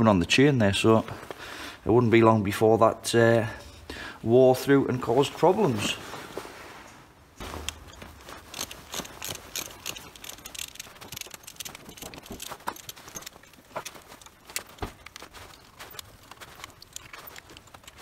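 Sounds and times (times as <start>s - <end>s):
hand tool clicking on metal: 7.6s - 18.0s.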